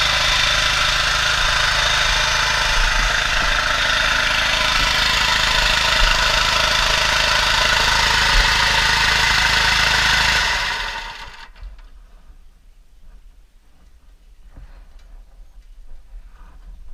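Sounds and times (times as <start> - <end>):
water pump engine running: 0.0 - 11.6.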